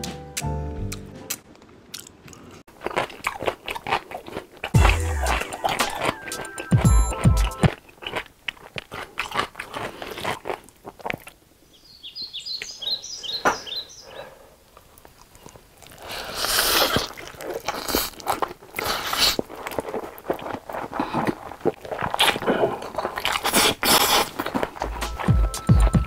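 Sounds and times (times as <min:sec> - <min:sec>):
loud chewing: 0:00.9 - 0:11.4, 0:14.8 - 0:26.0
mouth clicks: 0:04.6 - 0:08.2.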